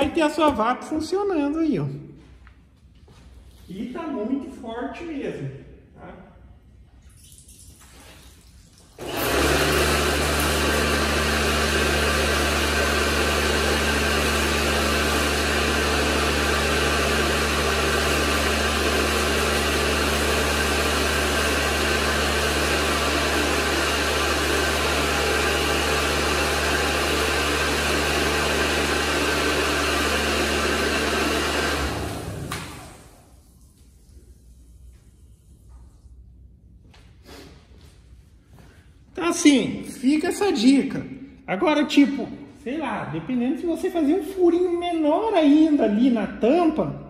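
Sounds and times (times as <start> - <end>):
pressure washer pump humming: 8.8 - 35.1.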